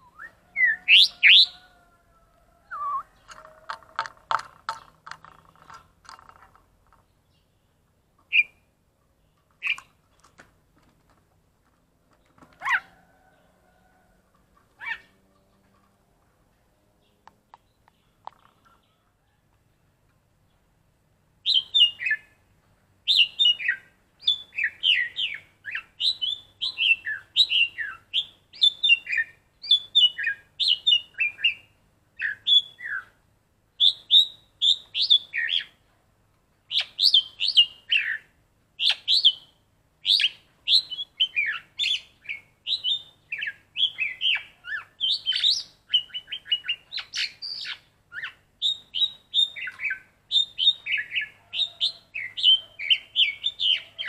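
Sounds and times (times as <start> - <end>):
starling singing: 0.0 - 2.0, 23.1 - 33.1, 33.8 - 35.8, 36.7 - 54.0.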